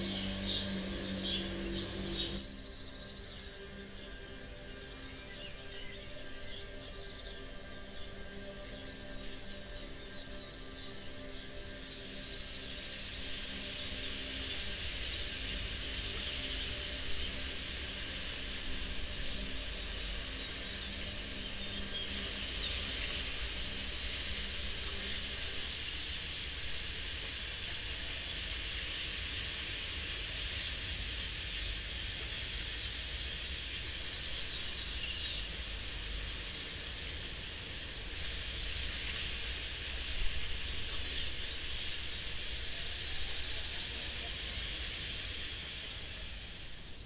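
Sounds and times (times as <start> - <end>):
low rumble: 0.0 - 2.6
hiss-like ambient texture: 0.0 - 47.0.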